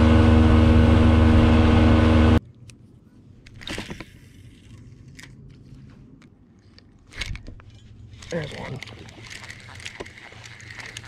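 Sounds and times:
motorboat engine running: 0:00.0 - 0:02.4.

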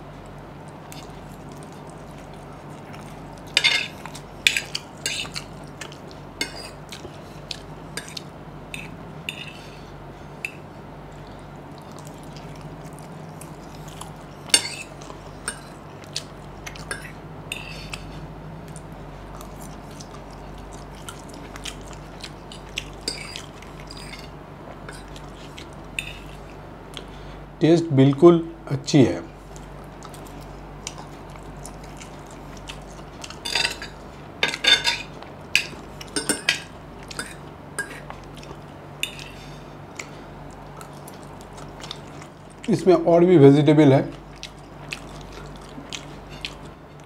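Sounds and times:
low steady hum: 0:00.0 - 0:47.0
chewing: 0:00.2 - 0:27.2, 0:29.4 - 0:42.8, 0:44.1 - 0:47.0
fork scraping a plate: 0:03.6 - 0:05.4, 0:06.4 - 0:06.8, 0:08.0 - 0:09.8, 0:16.9 - 0:18.1, 0:23.0 - 0:24.3.

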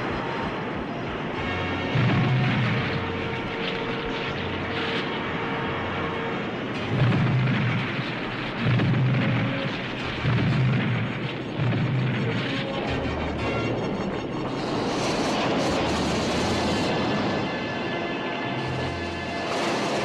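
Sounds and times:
cartoon earthquake rumbling: 0:00.0 - 0:20.0.

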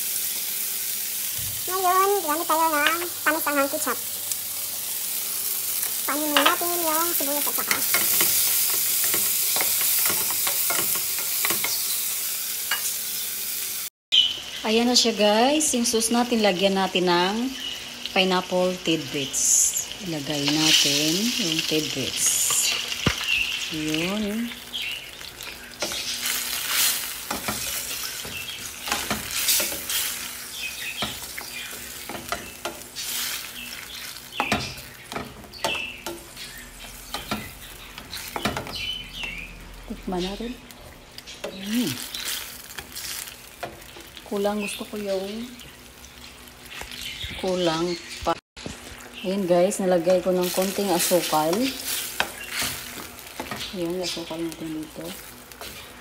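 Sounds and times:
vegetables sizzling in oil: 0:00.0 - 0:56.0
spatula scraping a pan: 0:25.8 - 0:33.5.

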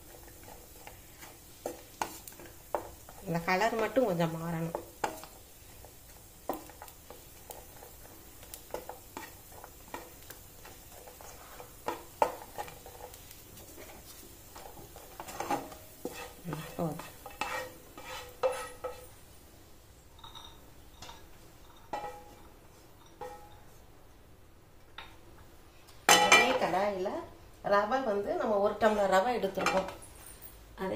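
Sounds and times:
spatula scraping frying pan: 0:00.0 - 0:19.2
light sizzling: 0:00.0 - 0:30.9.

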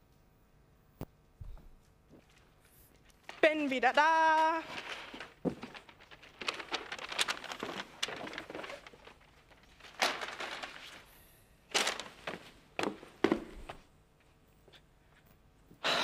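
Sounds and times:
soft rustling: 0:01.4 - 0:11.1.

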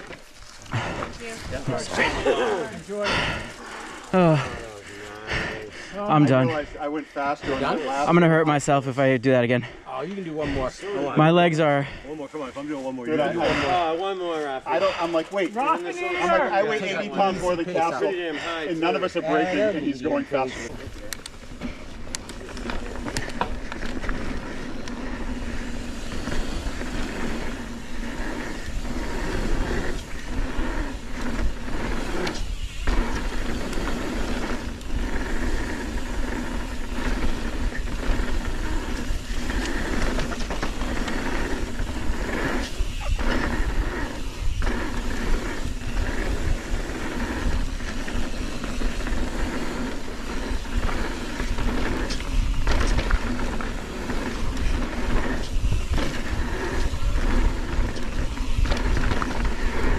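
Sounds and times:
tyres rattling over dirt: 0:00.0 - 0:09.7, 0:10.4 - 0:59.9
wind rush on microphone: 0:25.5 - 0:59.9.

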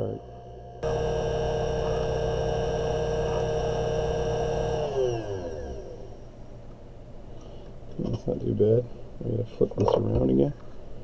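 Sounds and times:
lathe motor humming: 0:00.2 - 0:06.3.

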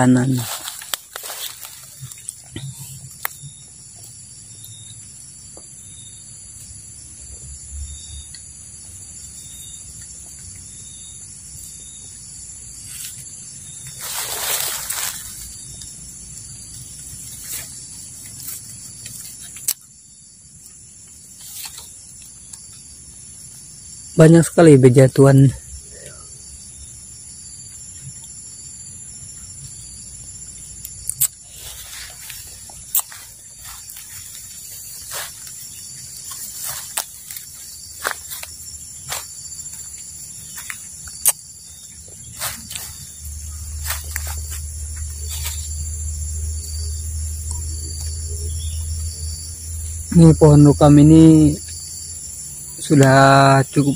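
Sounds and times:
footsteps through leaf litter: 0:00.0 - 0:02.3, 0:13.9 - 0:15.6, 0:31.5 - 0:40.9, 0:42.3 - 0:46.0
leaves rustling: 0:00.0 - 0:03.5, 0:11.4 - 0:19.8, 0:31.4 - 0:49.4
insects chirring: 0:00.0 - 0:53.9.

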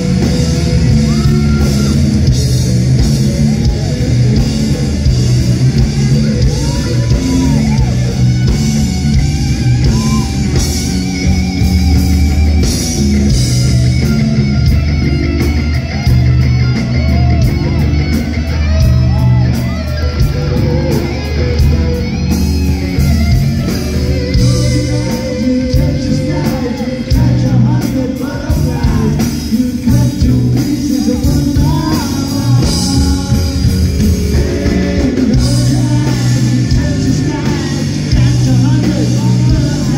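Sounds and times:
bass guitar: 0:00.0 - 0:39.9
drum kit: 0:00.0 - 0:39.9
electric guitar: 0:00.0 - 0:39.9
person singing: 0:24.0 - 0:39.9.

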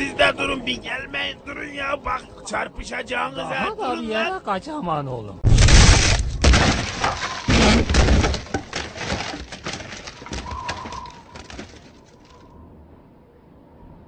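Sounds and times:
cartoon crash: 0:05.4 - 0:09.2
clattering knocks: 0:05.6 - 0:12.0.

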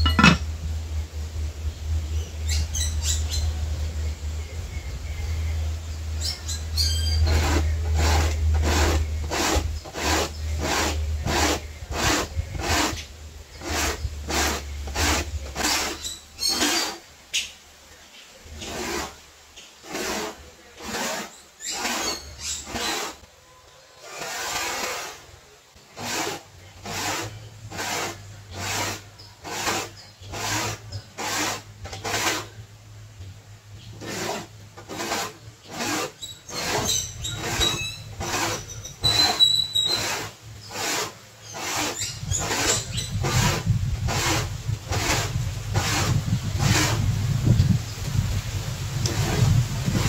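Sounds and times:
corn scraping on a grater: 0:00.0 - 0:00.4, 0:06.8 - 0:17.0, 0:18.5 - 0:19.2, 0:19.8 - 0:23.2, 0:24.0 - 0:25.2, 0:25.9 - 0:32.6, 0:33.9 - 0:47.7, 0:49.0 - 0:50.0.

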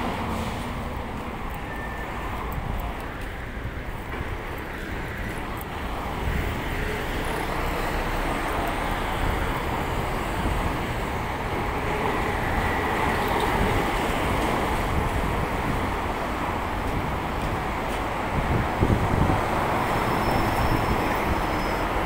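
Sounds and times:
street traffic: 0:00.0 - 0:22.0.

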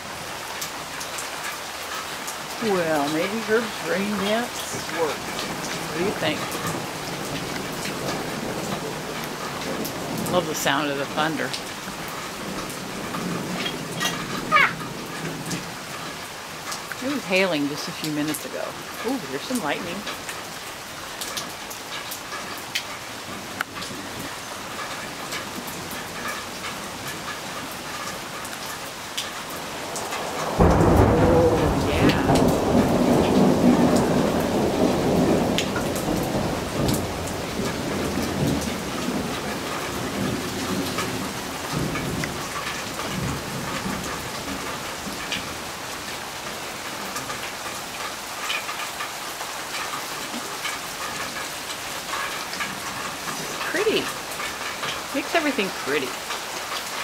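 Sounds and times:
steady rain falling: 0:00.0 - 0:57.0
thunder rumbling: 0:02.6 - 0:21.6, 0:23.3 - 0:48.0.

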